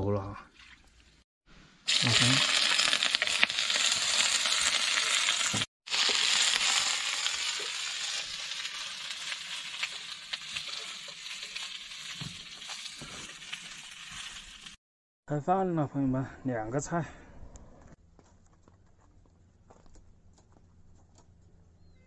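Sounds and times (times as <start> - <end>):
food sizzling in a hot pan: 1.9 - 14.8.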